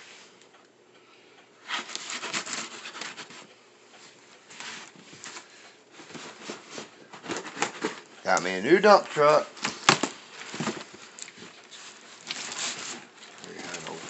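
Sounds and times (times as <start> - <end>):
cardboard boxes scraping: 11.7 - 14.0.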